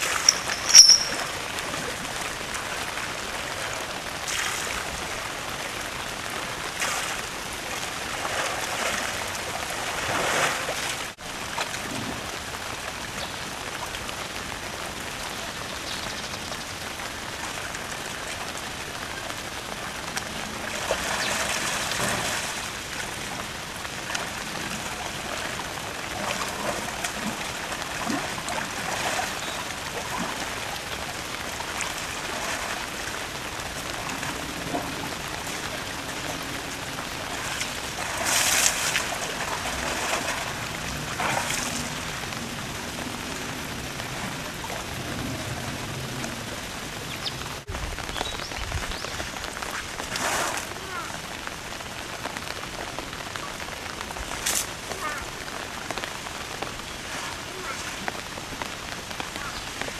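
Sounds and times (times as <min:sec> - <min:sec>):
running water rushing: 0:00.0 - 0:59.9
elephant splashing in water: 0:20.0 - 0:42.5, 0:49.7 - 0:50.9, 0:54.3 - 0:59.9.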